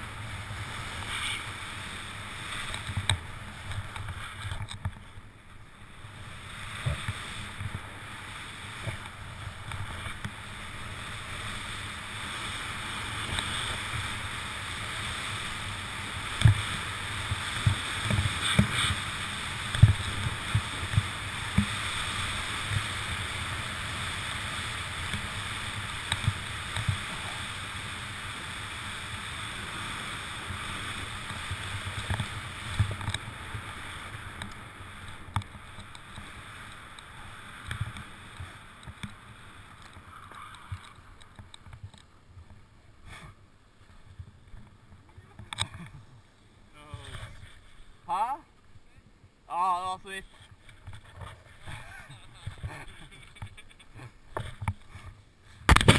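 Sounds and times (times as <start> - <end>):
snow hissing under skis: 0.0 - 4.4, 5.9 - 41.1.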